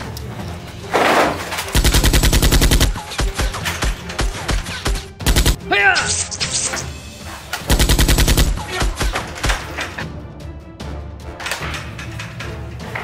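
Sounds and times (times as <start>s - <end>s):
background music: 0.0s - 13.0s
automatic gunfire: 1.7s - 3.0s, 5.2s - 5.6s, 7.7s - 9.0s.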